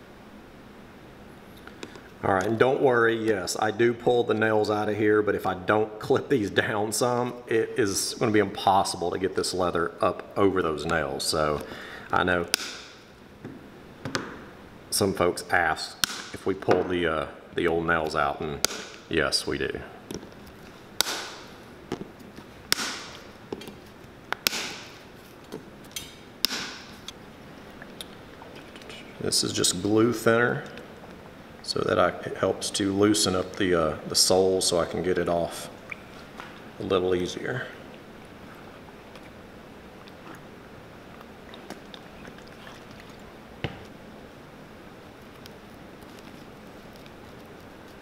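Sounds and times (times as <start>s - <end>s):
nail nippers cracking nails: 18.6s - 19.0s, 22.7s - 23.2s, 24.3s - 24.9s, 25.9s - 27.2s.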